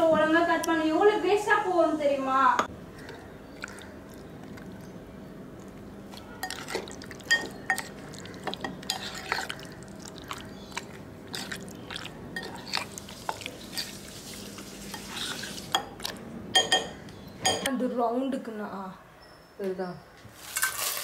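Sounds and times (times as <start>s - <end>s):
wet squelches of stirred meat: 2.9s - 4.9s, 5.6s - 16.2s.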